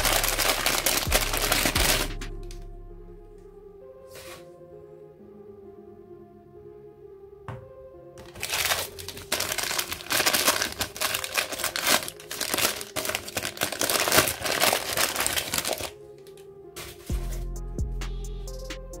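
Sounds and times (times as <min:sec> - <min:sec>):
wrapping paper crinkling: 0:00.0 - 0:02.3, 0:08.2 - 0:17.1
deep bass: 0:00.0 - 0:03.8, 0:17.1 - 0:19.0
background music: 0:00.0 - 0:19.0.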